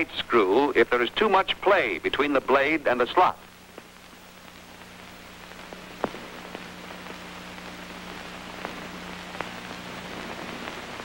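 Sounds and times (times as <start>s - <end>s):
crackles and pops: 0.0s - 11.0s
steady hiss: 0.0s - 11.0s.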